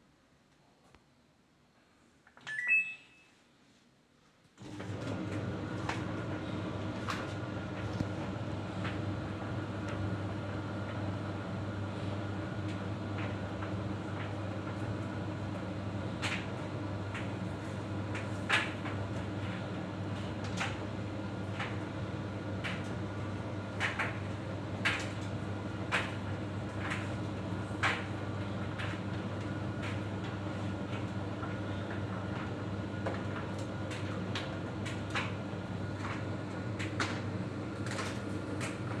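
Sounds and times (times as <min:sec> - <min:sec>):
tumble dryer motor humming: 0:04.6 - 0:39.0.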